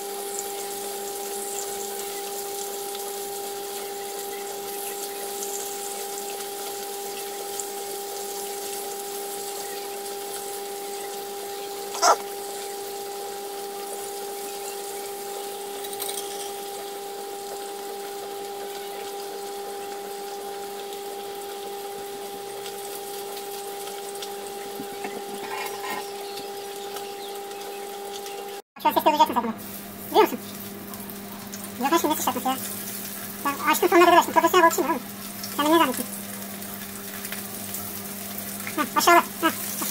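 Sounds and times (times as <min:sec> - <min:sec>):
fish sizzling in frying oil: 0:00.0 - 0:39.9
constant hum: 0:00.1 - 0:39.9.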